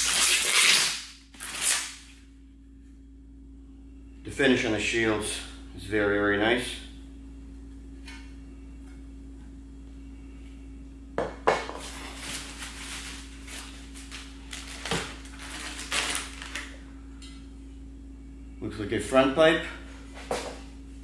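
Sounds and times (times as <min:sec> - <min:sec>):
steady low hum: 0:00.0 - 0:21.0
packing material rustling: 0:11.8 - 0:16.8.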